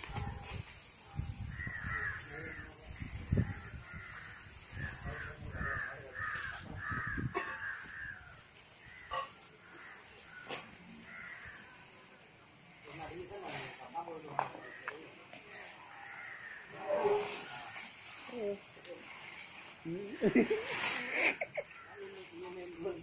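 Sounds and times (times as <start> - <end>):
palm fronds rustling: 0.0 - 23.0
crows cawing: 1.5 - 12.0, 15.8 - 16.9.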